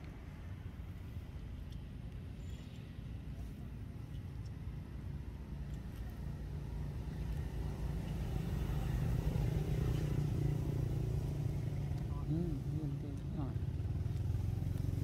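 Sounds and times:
vehicle engine running: 0:06.7 - 0:15.0.

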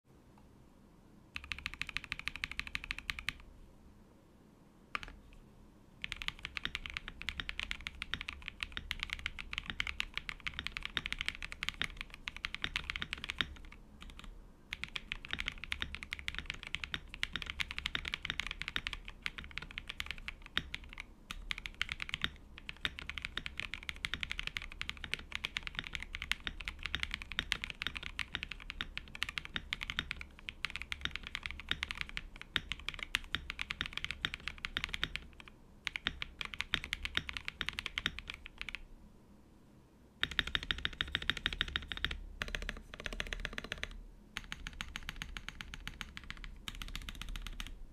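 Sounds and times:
fast mechanical keyboard typing: 0:01.4 - 0:03.4, 0:05.0 - 0:05.2, 0:06.0 - 0:38.8, 0:40.2 - 0:47.8.

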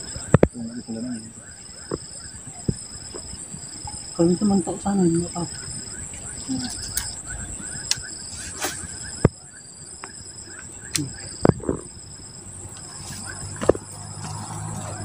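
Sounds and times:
insects trilling: 0:00.0 - 0:15.0
sharp clicks: 0:06.1 - 0:09.4, 0:10.8 - 0:11.9.

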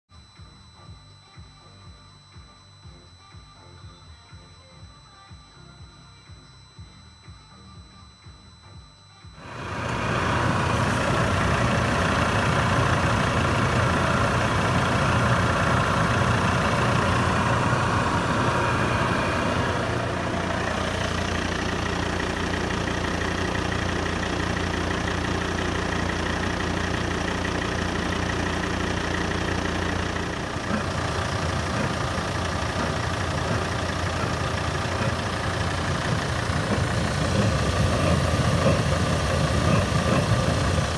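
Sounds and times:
steady low hum: 0:00.2 - 0:40.9
heater fan whirring drone: 0:09.1 - 0:26.8, 0:27.8 - 0:40.9.

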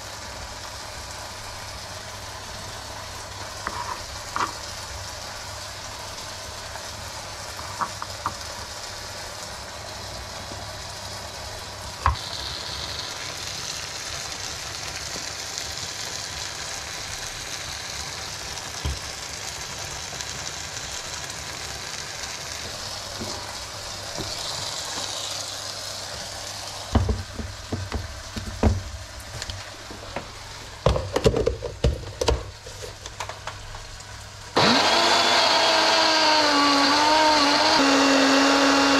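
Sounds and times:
meat sizzling in a frying pan: 0:00.0 - 0:38.9
kitchenware knocking and clattering: 0:30.9 - 0:32.5.

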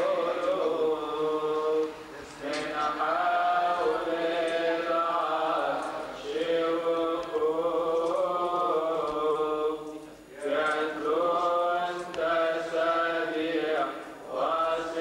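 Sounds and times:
man chanting a hymn: 0:00.0 - 0:15.0.

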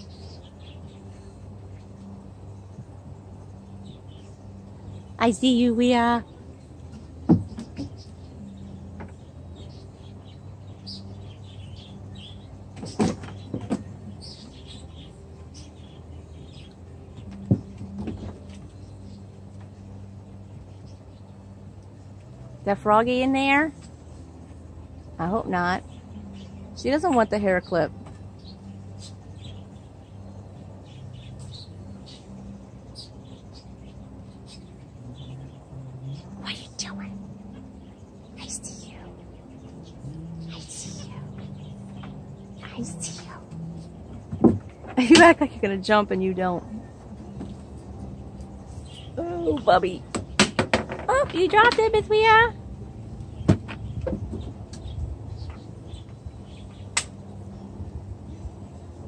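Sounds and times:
sharp knocks and thumps: 0:12.8 - 0:13.9, 0:50.1 - 0:51.9
faint bird chirps: 0:28.4 - 0:44.0.

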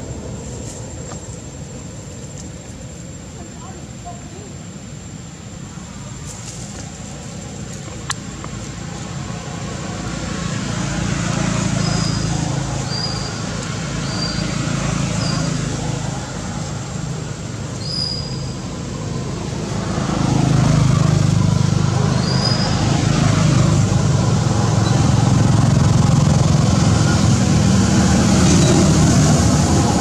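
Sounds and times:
motor traffic rumble: 0:00.0 - 0:30.0
vehicle engine approaching: 0:06.4 - 0:30.0.

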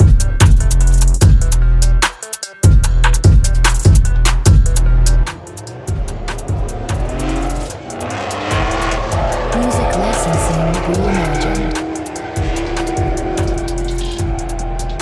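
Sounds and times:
background music with steady beat: 0:00.0 - 0:15.0
car engines revving: 0:02.7 - 0:15.0
tire squeal: 0:05.5 - 0:15.0.

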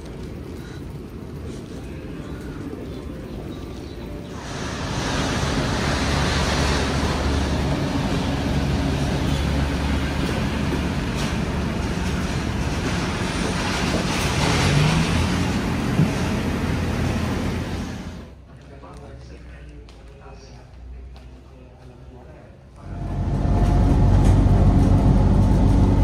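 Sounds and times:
vehicle running noise: 0:03.8 - 0:18.4, 0:22.8 - 0:26.0
low engine tone: 0:04.3 - 0:18.3, 0:22.8 - 0:26.0.

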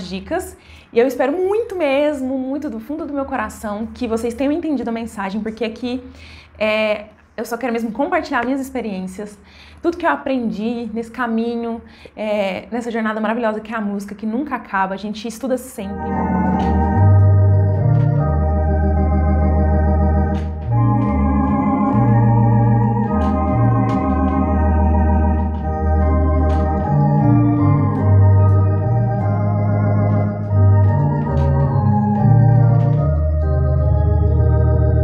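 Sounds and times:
deep pedal bass notes: 0:15.9 - 0:35.0
electronic organ chords: 0:15.9 - 0:35.0.

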